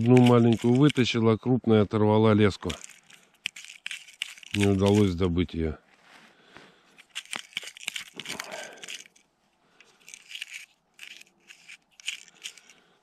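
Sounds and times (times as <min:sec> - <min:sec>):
sharp crackles: 0:00.0 - 0:01.2, 0:02.6 - 0:05.2.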